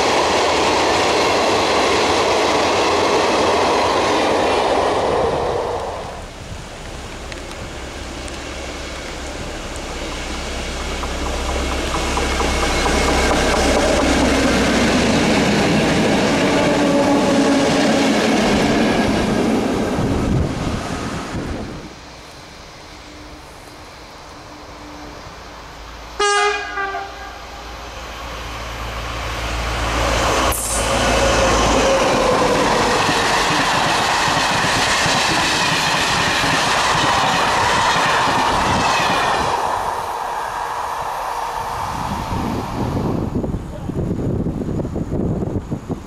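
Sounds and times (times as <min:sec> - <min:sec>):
train rolling past: 0:00.0 - 0:46.0
locomotive horn blast: 0:26.2 - 0:27.7.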